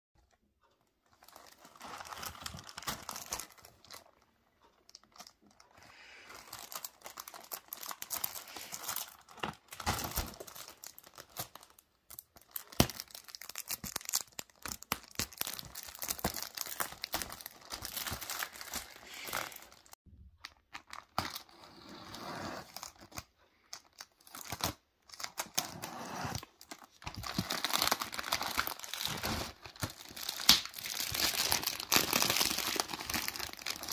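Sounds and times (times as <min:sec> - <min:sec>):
plastic wrap crinkling: 0:00.2 - 0:21.7, 0:26.3 - 0:33.9
plastic tearing: 0:06.3 - 0:23.3, 0:23.9 - 0:33.9.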